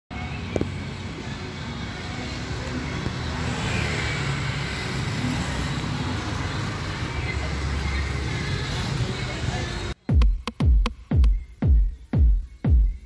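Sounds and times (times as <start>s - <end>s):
passing cars and motorcycles: 0.1s - 10.0s.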